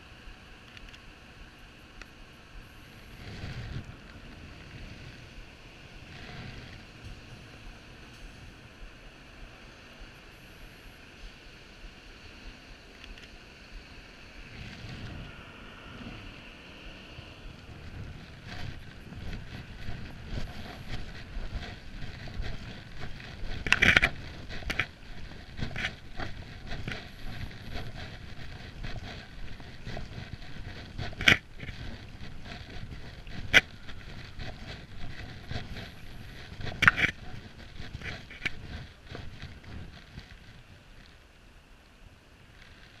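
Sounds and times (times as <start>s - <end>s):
low microphone rumble: 2.4s - 10.8s, 14.4s - 41.1s
footsteps on wet stone: 17.8s - 40.4s.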